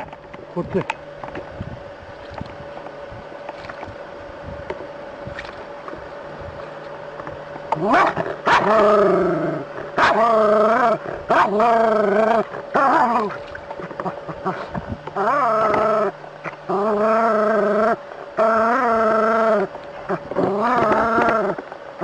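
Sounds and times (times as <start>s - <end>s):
small dog barking: 7.8s - 8.8s, 10.0s - 10.3s, 11.3s - 11.6s.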